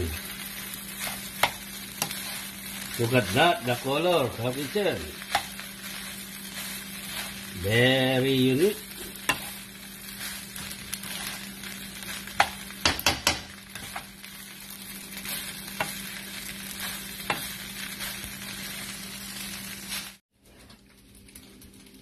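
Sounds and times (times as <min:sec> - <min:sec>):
rice sizzling in a wok: 0:00.0 - 0:22.0
spatula tapping and scraping pan: 0:01.0 - 0:02.4, 0:05.3 - 0:05.6, 0:09.2 - 0:09.6, 0:12.3 - 0:14.1, 0:17.2 - 0:17.5.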